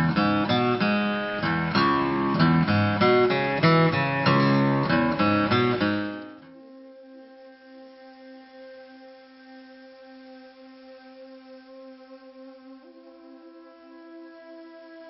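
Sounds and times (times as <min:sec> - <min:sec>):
acoustic guitar strumming chords: 0:00.0 - 0:06.9.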